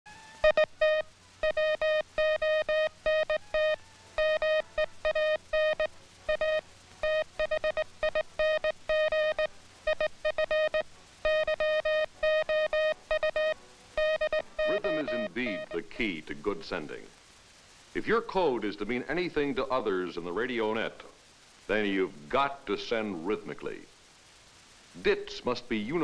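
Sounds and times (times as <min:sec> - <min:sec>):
morse code tone: 0:00.4 - 0:16.0.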